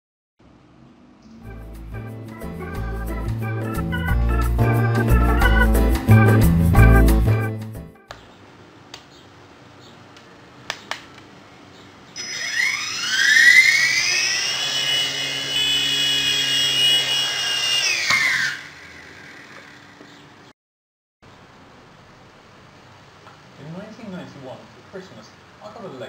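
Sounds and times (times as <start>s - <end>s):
toy helicopter rotor whine: 12.2s - 20.4s.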